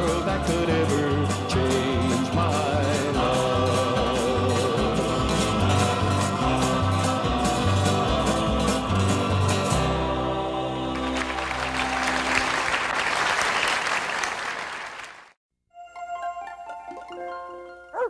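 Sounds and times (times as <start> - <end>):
band playing country ballad: 0.0 - 10.3
audience applauding: 10.9 - 15.4.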